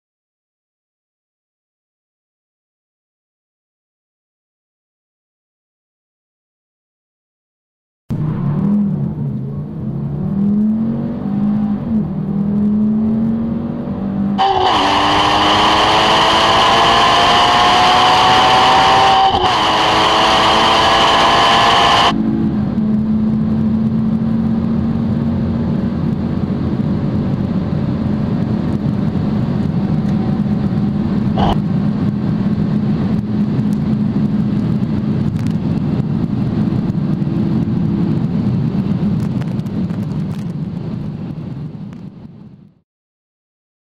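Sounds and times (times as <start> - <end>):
sports car accelerating: 8.1 - 39.5
car engine droning at high speed: 8.1 - 42.8.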